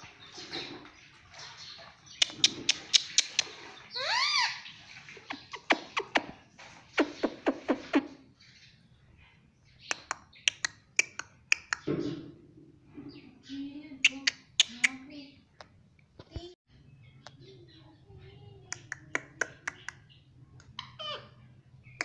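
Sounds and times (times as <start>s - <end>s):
parakeet call rising and falling: 3.9s - 4.6s
parakeet clicking: 9.9s - 11.9s.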